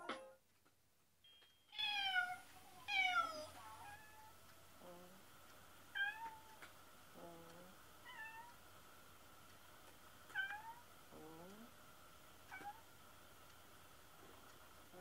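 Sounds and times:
cat meowing: 1.8s - 4.4s, 10.3s - 10.8s.

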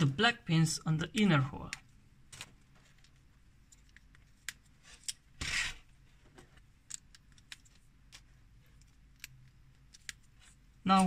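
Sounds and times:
plastic parts clicking: 6.6s - 10.2s.

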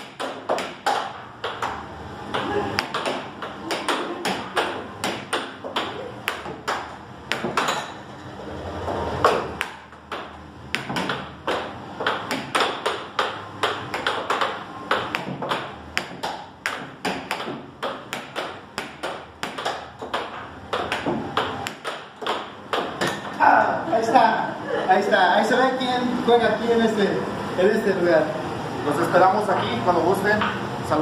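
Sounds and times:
air hockey puck clacking: 0.0s - 8.0s, 9.2s - 23.4s.

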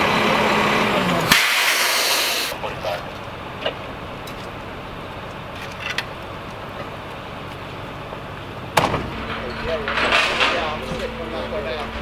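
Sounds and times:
vehicle engine idling: 2.5s - 12.0s.

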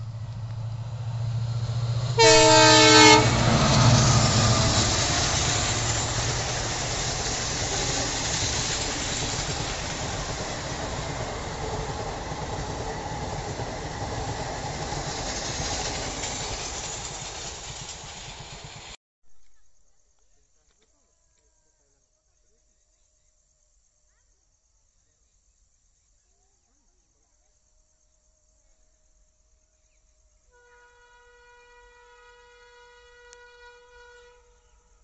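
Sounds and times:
diesel locomotive engine humming: 0.0s - 19.0s
train horn: 2.2s - 5.0s, 30.5s - 35.0s.

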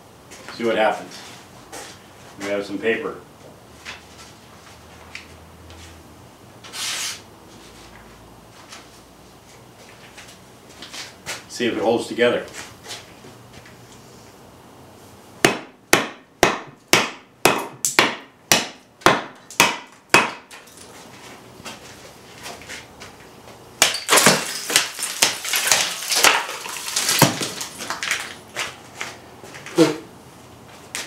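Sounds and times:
knife chopping wood: 15.4s - 20.5s, 23.8s - 27.6s
knife chopping ice: 23.8s - 27.6s
ice cracking and shattering: 23.8s - 28.4s.

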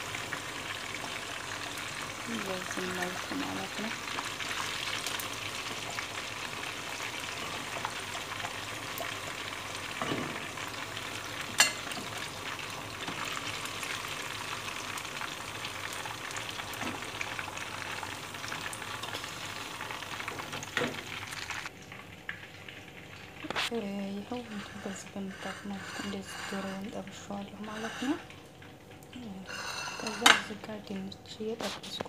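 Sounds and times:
chicken deep-frying in oil: 0.0s - 32.0s
metal skimmer clinking on pan: 11.6s - 12.0s.

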